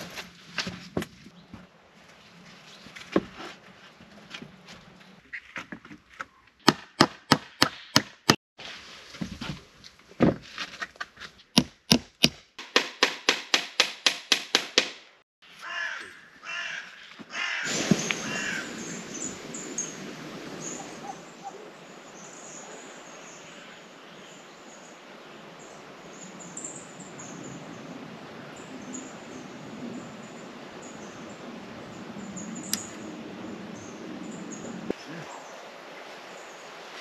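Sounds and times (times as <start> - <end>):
wood being chopped: 6.6 - 8.4, 11.6 - 15.0
birds calling: 15.5 - 36.8.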